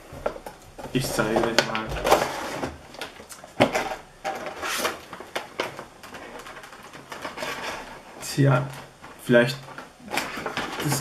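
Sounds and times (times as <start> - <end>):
plastic packaging crinkling: 0.2 - 11.0.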